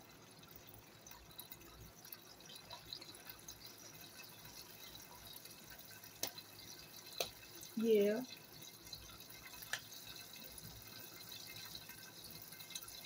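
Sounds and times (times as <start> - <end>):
small pops and ticks: 1.1 - 12.9.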